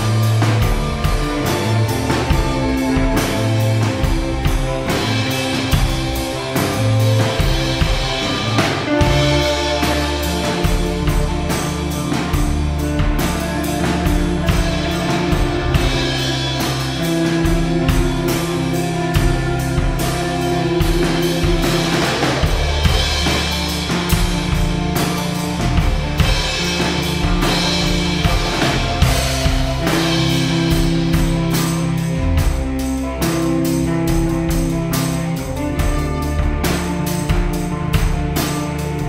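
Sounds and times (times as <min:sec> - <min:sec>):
drum kit steady beat: 0:00.0 - 0:39.0
rock band playing live: 0:00.0 - 0:39.0.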